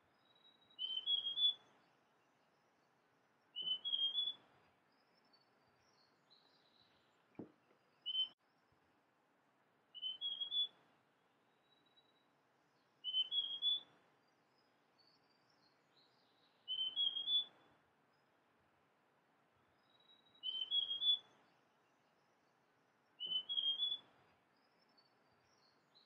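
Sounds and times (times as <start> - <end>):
bird whistling rising notes: 0.8 - 1.6, 3.6 - 4.4, 10.0 - 10.7, 13.0 - 13.9, 16.7 - 17.5, 20.4 - 21.3, 23.2 - 24.0.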